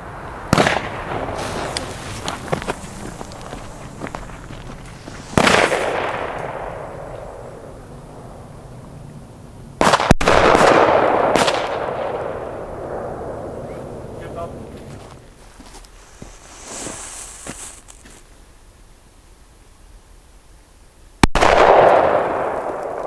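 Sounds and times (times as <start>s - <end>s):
firecracker bangs with echo: 0.5s - 2.1s, 5.2s - 7.7s, 9.8s - 13.8s, 21.2s - 23.0s.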